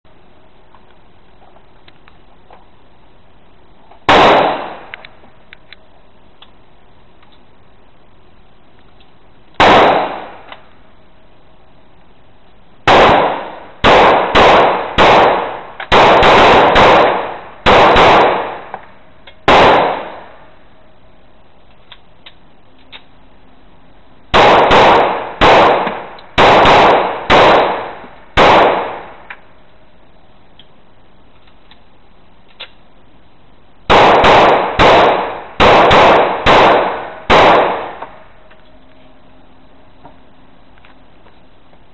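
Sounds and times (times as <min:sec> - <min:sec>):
pistol shots echoing indoors: 0:12.9 - 0:18.7, 0:19.5 - 0:20.2, 0:24.4 - 0:29.1, 0:33.9 - 0:38.1.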